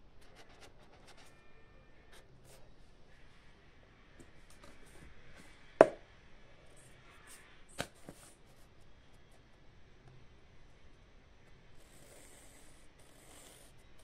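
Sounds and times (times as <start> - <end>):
pen scratching on paper: 0.2 - 1.4.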